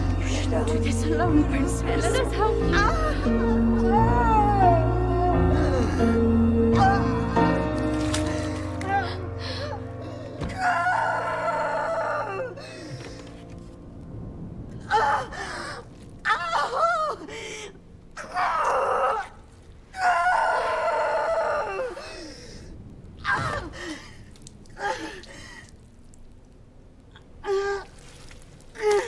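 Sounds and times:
woman screaming and groaning: 0:18.2 - 0:22.4.

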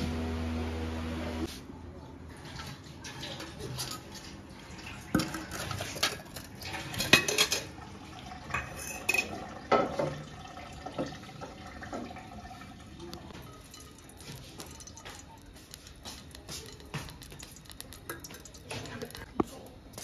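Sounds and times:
dishes and cutlery clattering: 0:02.5 - 0:07.8, 0:08.5 - 0:11.2, 0:13.3 - 0:20.0.

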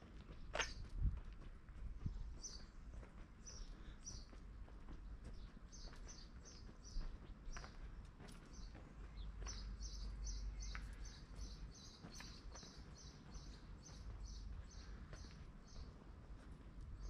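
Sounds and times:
small bird chirping: 0:08.4 - 0:15.9.

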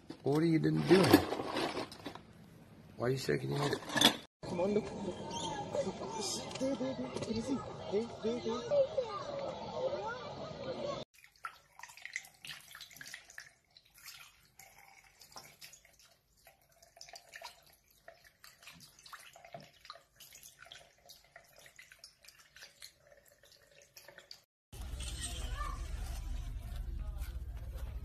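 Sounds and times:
small splashes and drips: 0:11.1 - 0:24.5
water trickling from tap: 0:11.2 - 0:24.5.

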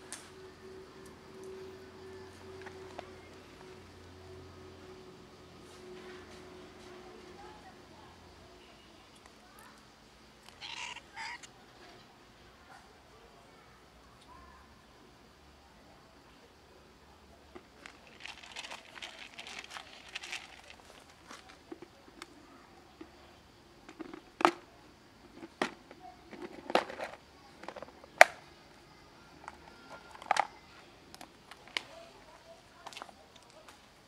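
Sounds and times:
plastic crinkling rustle: 0:17.8 - 0:21.6.

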